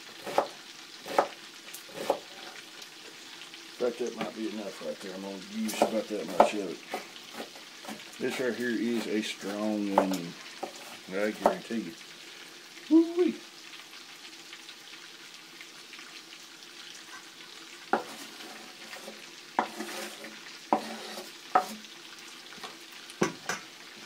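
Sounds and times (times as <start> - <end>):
bacon sizzling in a pan: 0.0 - 24.0.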